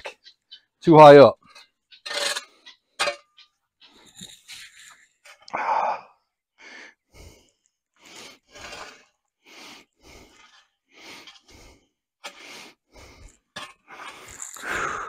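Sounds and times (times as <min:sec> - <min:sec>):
person breathing hard: 0:05.5 - 0:08.6, 0:09.4 - 0:15.0.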